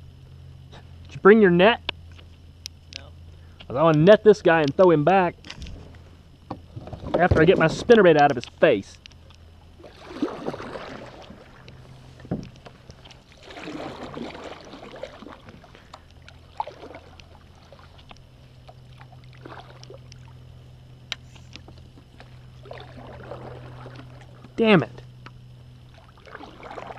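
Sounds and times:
paddle swishing in water: 9.8 - 20.1, 22.0 - 24.6, 25.9 - 26.9.

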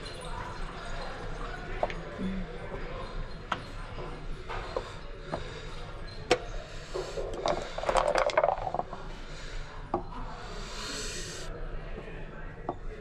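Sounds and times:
dice clattering across board: 7.0 - 9.0
dice rattling in cup: 7.3 - 9.0.

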